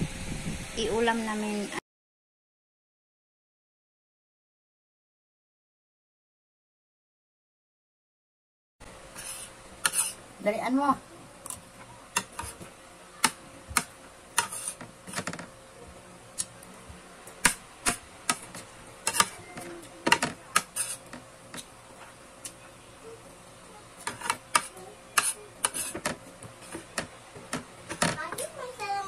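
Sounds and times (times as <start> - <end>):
cutlery clinking on a plate: 14.4 - 15.4, 19.1 - 19.4.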